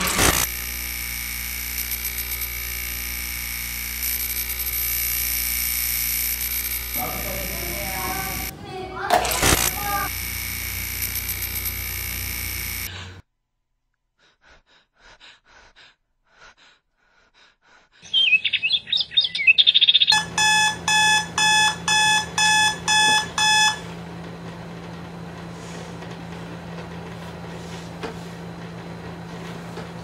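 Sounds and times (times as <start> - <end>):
steady hum: 0.0 - 13.2, 20.2 - 30.0
alarm clock beeping: 3.9 - 8.5, 9.2 - 13.0, 20.1 - 24.0
bird-like chirping: 18.0 - 20.3.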